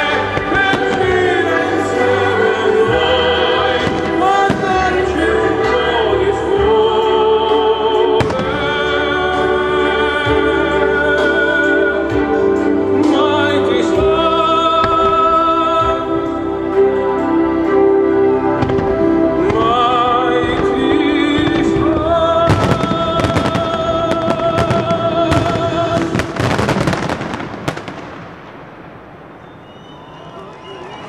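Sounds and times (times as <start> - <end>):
fireworks bursting and crackling: 0.0 - 6.0, 18.6 - 30.3
music with person singing: 0.0 - 26.7.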